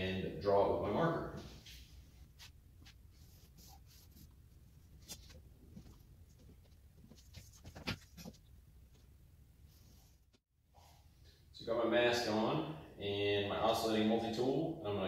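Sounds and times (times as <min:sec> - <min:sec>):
marker scratching along ruler: 0:02.4 - 0:04.3.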